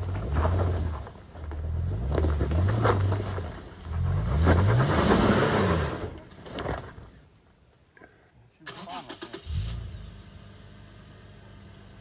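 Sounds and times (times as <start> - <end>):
tyres crunching over loose stones: 0.0 - 5.3, 5.9 - 7.4
engine revving under load: 3.9 - 6.2.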